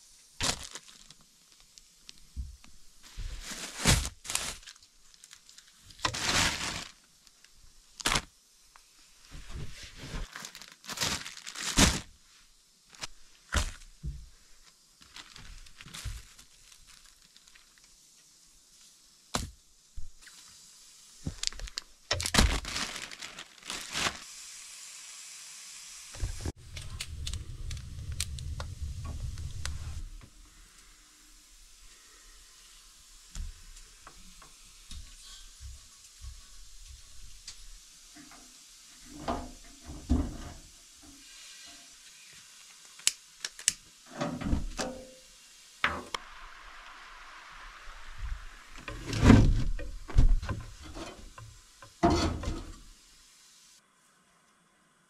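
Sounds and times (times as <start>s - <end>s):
plastic bags crinkling: 0.4s - 2.2s, 3.1s - 7.4s, 10.2s - 12.2s, 15.0s - 17.8s, 21.3s - 24.3s
wood fire burning in stove: 26.2s - 40.2s.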